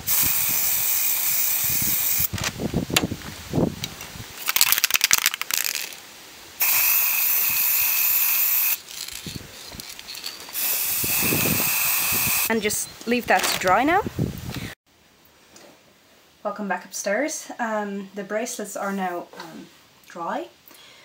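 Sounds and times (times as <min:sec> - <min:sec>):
spray paint can hissing: 0:00.0 - 0:02.4, 0:04.4 - 0:06.0, 0:06.6 - 0:12.5
wind rumble on microphone: 0:01.5 - 0:04.4, 0:10.9 - 0:14.8
rattling clicks: 0:03.8 - 0:06.0, 0:08.8 - 0:10.6.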